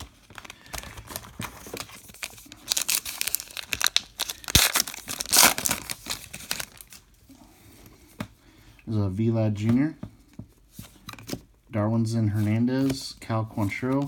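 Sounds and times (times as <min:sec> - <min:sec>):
foil wrapper crinkling and tearing: 0:00.0 - 0:07.0.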